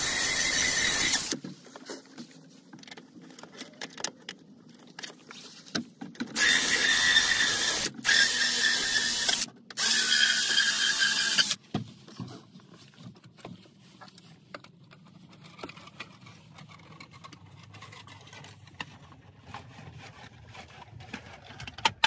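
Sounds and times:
cordless drill drilling: 0:00.0 - 0:01.4, 0:06.4 - 0:11.6.

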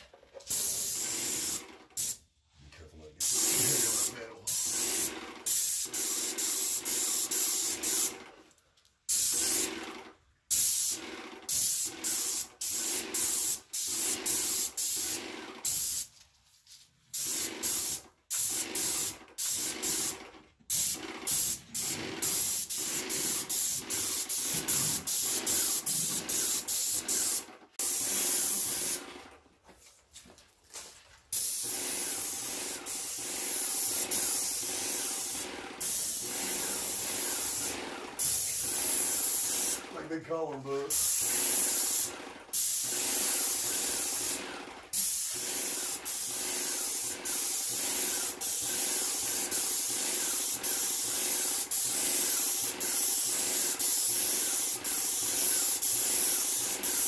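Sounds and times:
paint spray gun hissing: 0:00.4 - 0:02.2, 0:03.2 - 0:08.2, 0:09.1 - 0:09.8, 0:10.5 - 0:16.1, 0:17.1 - 0:29.1, 0:31.3 - 0:39.9, 0:40.9 - 0:57.0.

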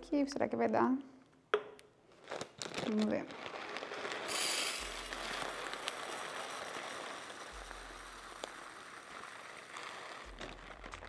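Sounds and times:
rice pouring into glass jar: 0:02.2 - 0:11.0.

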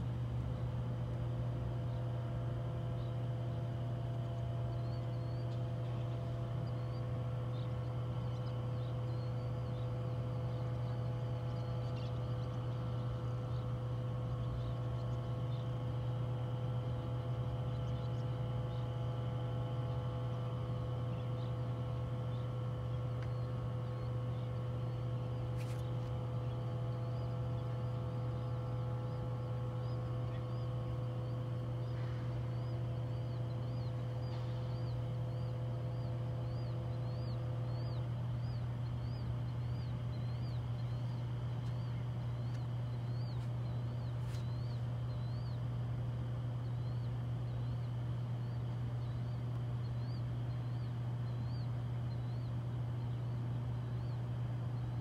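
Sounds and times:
low machinery hum: 0:00.0 - 0:55.0
faint bird chirps: 0:01.8 - 0:55.0.

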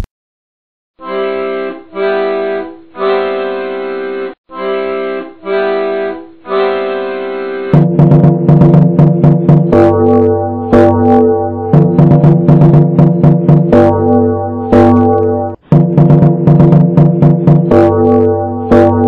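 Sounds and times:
held chords: 0:01.0 - 0:19.0
music track with drum beats: 0:07.7 - 0:19.0.

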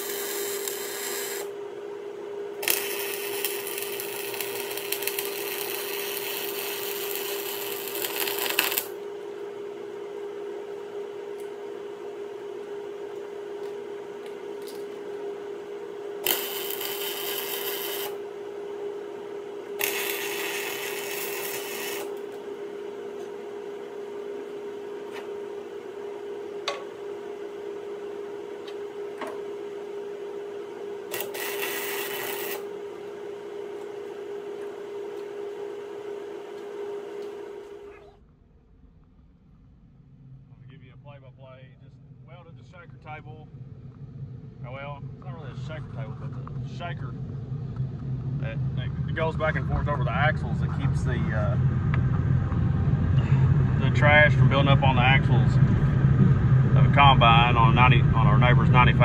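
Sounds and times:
arc welder crackling and sizzling: 0:00.0 - 0:01.5, 0:02.5 - 0:09.0, 0:16.2 - 0:18.2, 0:19.6 - 0:22.5, 0:31.0 - 0:33.1
steady low hum: 0:00.0 - 0:59.0.

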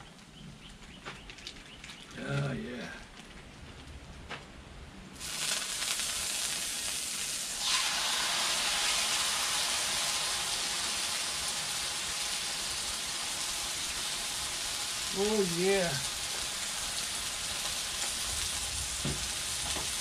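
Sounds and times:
steak sizzling on a hot griddle: 0:05.2 - 0:20.0.

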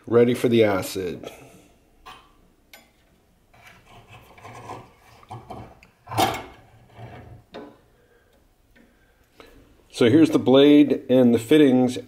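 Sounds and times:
wire hanger scraping: 0:03.5 - 0:07.6.

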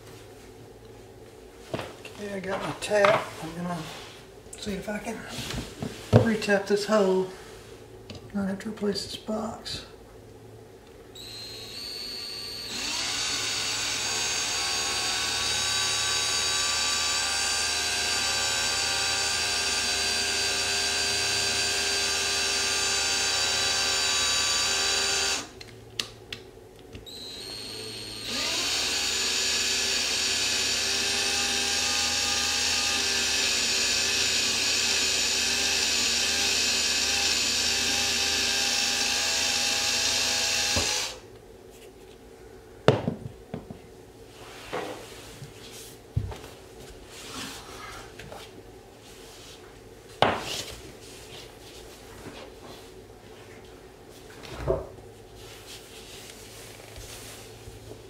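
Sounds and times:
cordless drill motor whining: 0:11.2 - 0:25.6, 0:27.1 - 0:41.2
drill clicks: 0:12.6 - 0:25.7.

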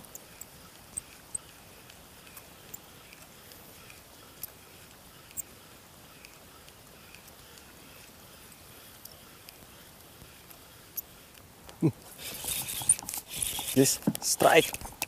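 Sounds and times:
faint steady hiss: 0:00.0 - 0:15.0
sharp high clicks: 0:12.1 - 0:15.0.

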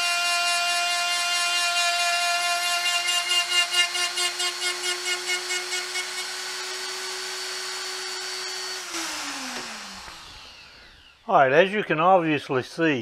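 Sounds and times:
die grinder whining: 0:00.0 - 0:11.3
grinder spinning down: 0:01.5 - 0:11.4
grinding wheel on metal: 0:02.4 - 0:11.0.

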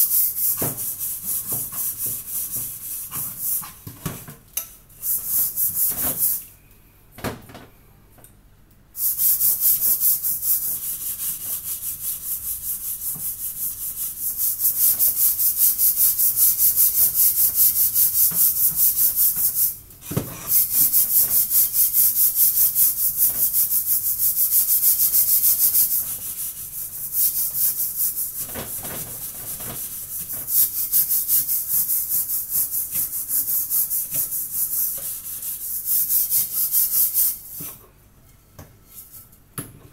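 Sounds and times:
pan being scrubbed by hand: 0:00.0 - 0:03.9, 0:09.0 - 0:19.8, 0:20.4 - 0:37.8.

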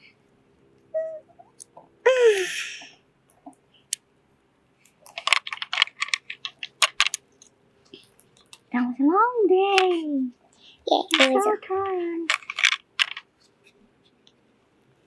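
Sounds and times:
child vocal sound: 0:02.0 - 0:02.9
plastic toy pieces clicking: 0:05.0 - 0:07.2, 0:12.3 - 0:13.3.

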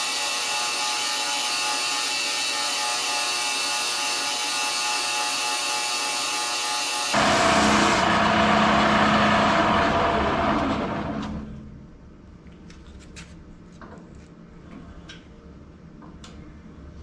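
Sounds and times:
lathe motor hum: 0:00.0 - 0:11.5.

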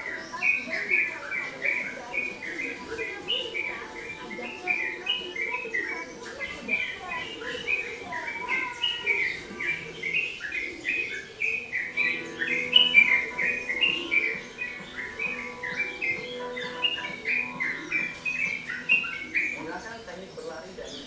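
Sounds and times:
bird chirping: 0:00.0 - 0:21.0.

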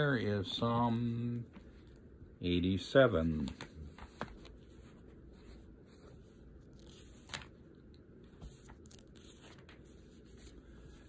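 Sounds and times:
paper pages rustling: 0:03.4 - 0:11.0.

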